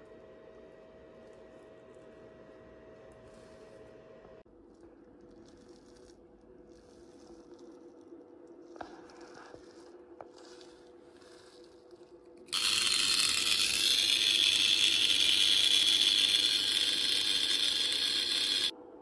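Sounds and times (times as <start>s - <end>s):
relay buzzing: 12.5s - 18.7s.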